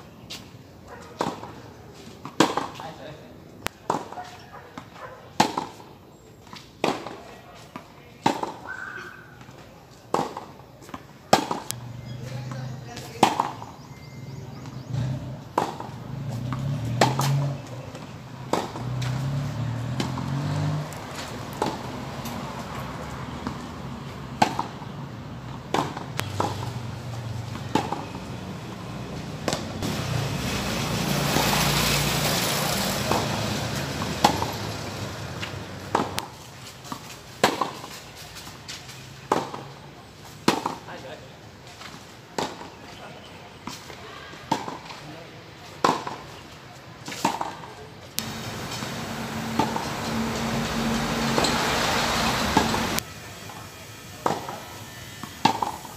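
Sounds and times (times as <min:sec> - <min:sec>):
tennis balls struck by rackets: 0:00.3 - 0:13.8, 0:14.6 - 0:30.0, 0:33.0 - 0:41.1, 0:41.8 - 0:43.0, 0:43.6 - 0:51.6, 0:52.5 - 0:53.6, 0:54.2 - 0:55.9
tennis balls bouncing on hard court: 0:00.9 - 0:03.0, 0:03.6 - 0:05.9, 0:06.5 - 0:29.9, 0:33.0 - 0:34.7, 0:35.3 - 0:38.0, 0:39.2 - 0:39.8, 0:40.4 - 0:40.9, 0:43.6 - 0:45.0, 0:45.6 - 0:46.4, 0:47.0 - 0:51.6, 0:55.2 - 0:55.9.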